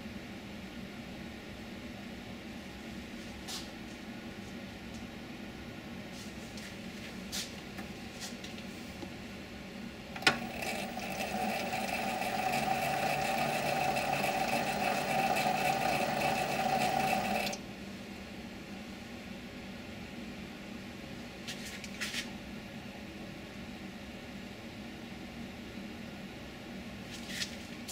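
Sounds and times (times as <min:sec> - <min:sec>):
lathe carriage whine: 0:10.2 - 0:17.6
lathe humming: 0:10.2 - 0:17.6.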